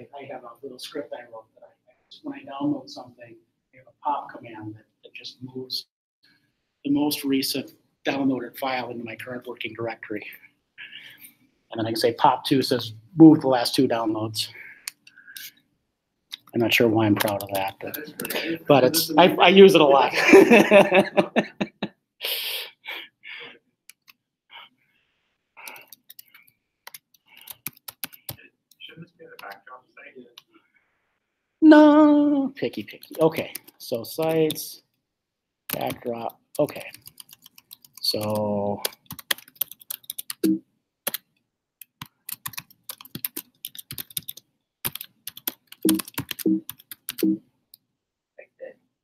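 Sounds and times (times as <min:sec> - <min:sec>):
computer keyboard typing: 0:17.1 - 0:18.5, 0:25.6 - 0:28.4, 0:35.7 - 0:41.2, 0:41.8 - 0:47.4.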